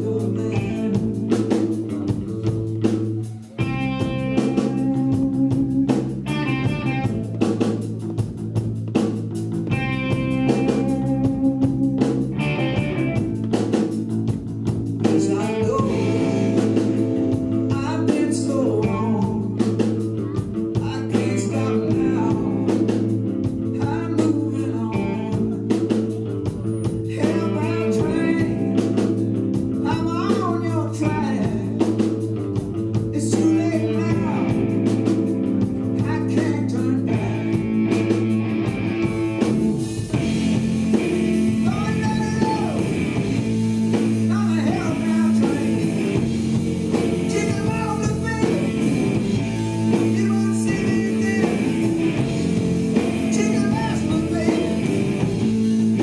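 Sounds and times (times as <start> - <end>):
man singing: 0.0 - 2.2, 15.0 - 32.2, 33.0 - 37.6, 41.5 - 43.4, 44.0 - 52.5, 53.1 - 56.0
bass and drums: 0.0 - 56.0
electric guitar with bending notes: 0.0 - 56.0.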